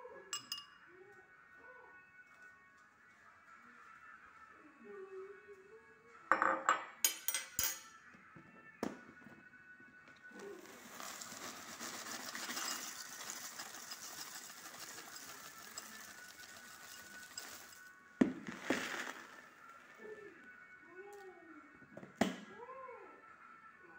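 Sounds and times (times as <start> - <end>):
cornflakes pouring into bowl: 10.4 - 20.1.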